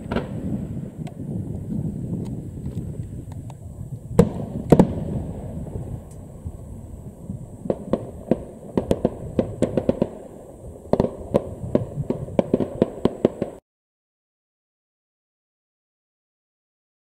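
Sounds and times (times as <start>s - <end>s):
low rumble: 0.0s - 13.1s
fireworks bangs and pops: 0.0s - 13.6s.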